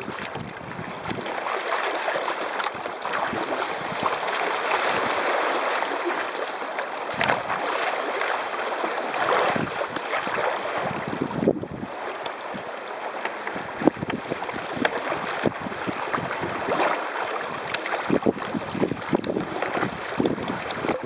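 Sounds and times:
wind gusting on microphone: 0.0 - 1.4, 9.3 - 11.9, 18.1 - 21.0
water splashing along kayak hull: 0.0 - 21.0.

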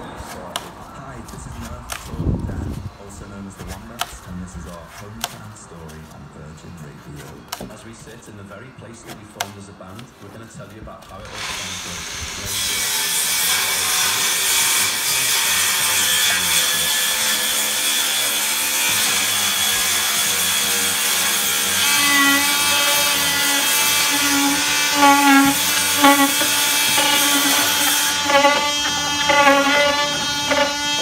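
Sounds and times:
power tool cutting foam: 11.2 - 31.0.

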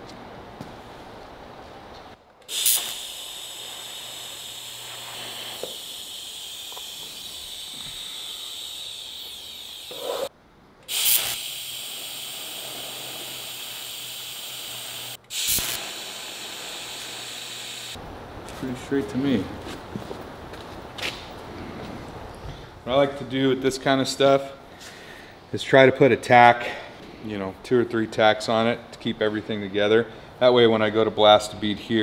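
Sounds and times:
arc welding hiss: 2.5 - 10.3, 10.9 - 18.0.

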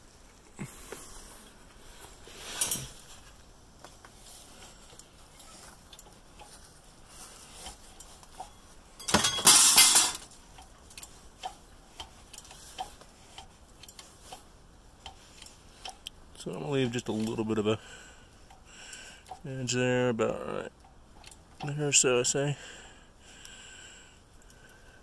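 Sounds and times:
metallic clicks and taps: 10.6 - 14.4.

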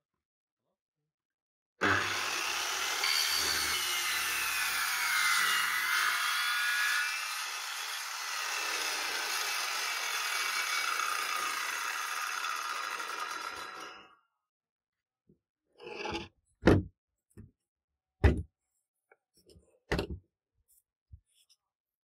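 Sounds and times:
circular saw cutting wood: 1.8 - 14.2.

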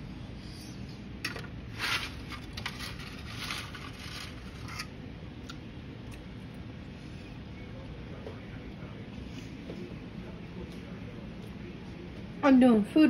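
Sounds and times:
fork scraping ceramic plate: 1.8 - 4.9.

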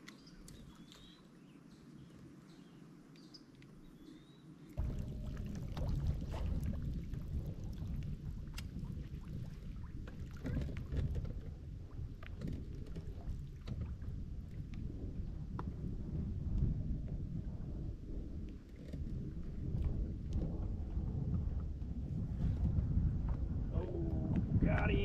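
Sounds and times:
water lapping at hull: 4.7 - 16.0
wind buffeting microphone: 4.8 - 25.0.

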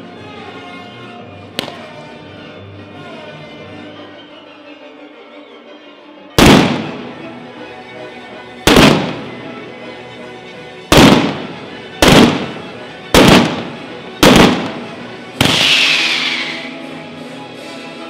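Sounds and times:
loud firework bangs: 6.4 - 7.1, 8.7 - 9.4, 10.9 - 16.2.

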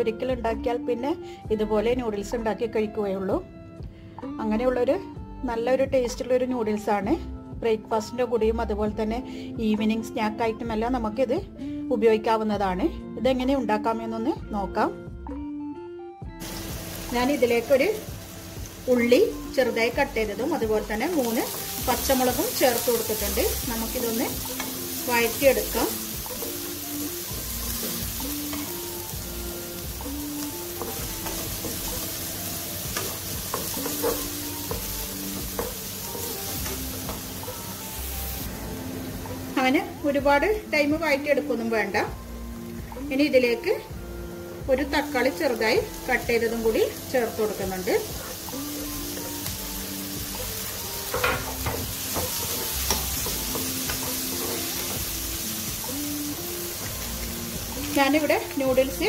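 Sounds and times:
onion sizzling in a pan: 16.4 - 59.0
spatula scraping and tapping pan: 30.4 - 32.1, 32.9 - 37.3, 51.0 - 55.1.

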